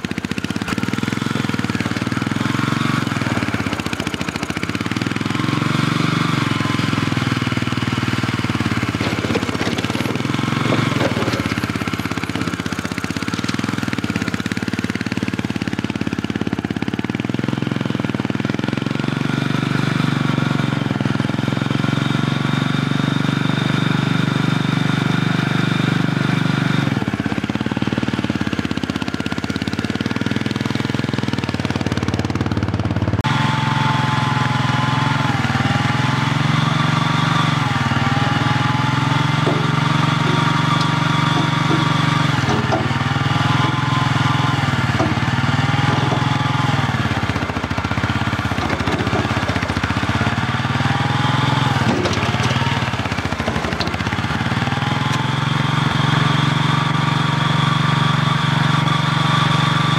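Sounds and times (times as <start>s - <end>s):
loader engine running: 0.0s - 59.9s
hydraulic whine sagging: 33.2s - 59.9s.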